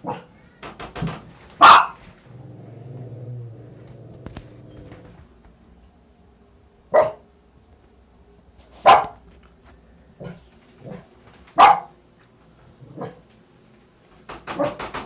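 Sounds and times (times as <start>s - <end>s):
small dog barking: 1.6s - 2.0s, 6.9s - 7.2s, 8.8s - 9.2s, 11.6s - 11.9s.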